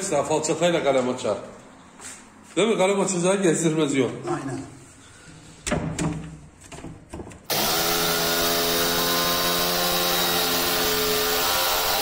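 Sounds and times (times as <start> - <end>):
jigsaw cutting wood: 7.5 - 12.0.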